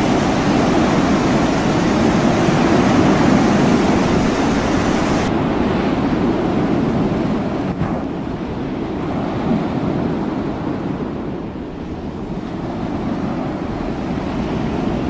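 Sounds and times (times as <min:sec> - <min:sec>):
loud even rushing noise: 0:00.0 - 0:05.4
sea waves: 0:00.0 - 0:06.2
wind buffeting microphone: 0:00.0 - 0:15.0.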